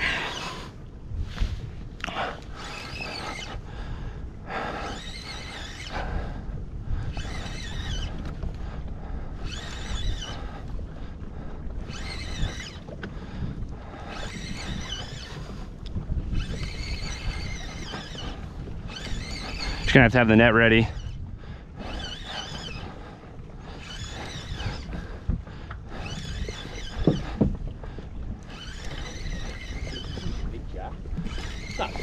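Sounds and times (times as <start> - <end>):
wind rumble on microphone: 0.0 - 32.0
fishing reel cranking: 2.1 - 3.7, 4.5 - 8.8, 9.4 - 10.8, 11.8 - 13.0, 13.9 - 21.2, 21.8 - 27.5, 28.3 - 32.0.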